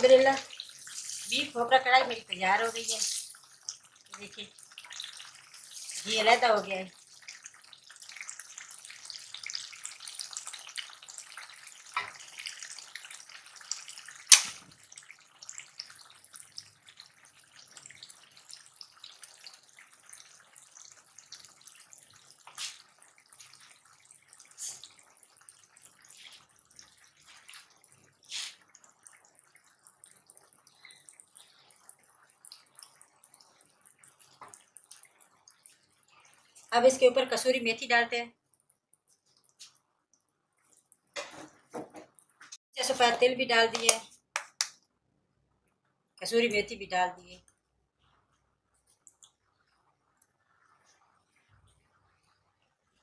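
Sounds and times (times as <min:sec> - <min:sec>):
meat sizzling in ghee: 0:00.0 - 0:29.1.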